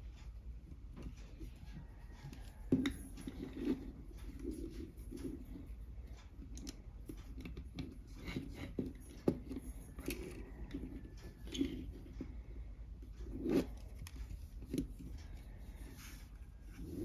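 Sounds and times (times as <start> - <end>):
soft rustling: 8.0 - 17.0.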